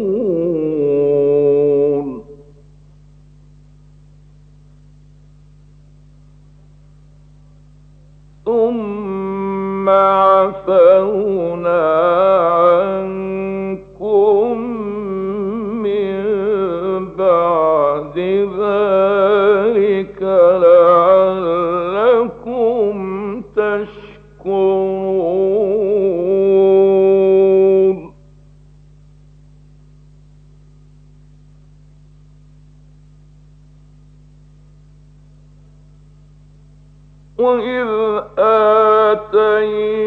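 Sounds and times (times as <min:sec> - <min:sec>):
man chanting melodically: 0:00.0 - 0:02.6, 0:08.4 - 0:28.2, 0:37.4 - 0:40.0
steady low hum: 0:00.0 - 0:40.0.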